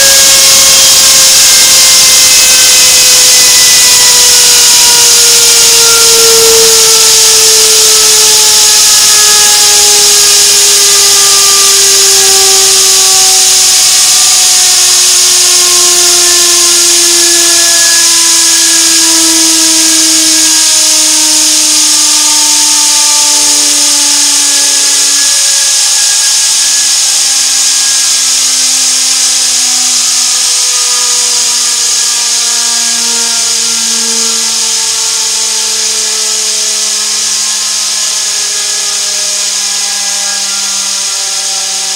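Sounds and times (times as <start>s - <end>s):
loud steady hiss: 0.0s - 41.9s
turbine rotor whining: 0.0s - 41.9s.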